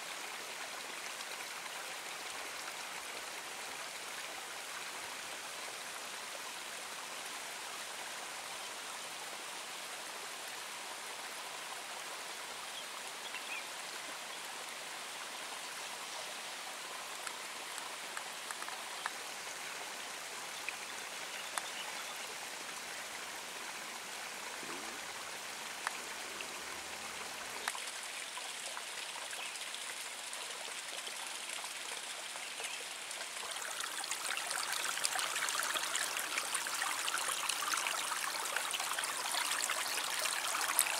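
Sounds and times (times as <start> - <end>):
water rushing in ditch: 10.3 - 40.9
faint clicks: 17.2 - 19.2, 21.5 - 21.8, 25.8 - 26.0.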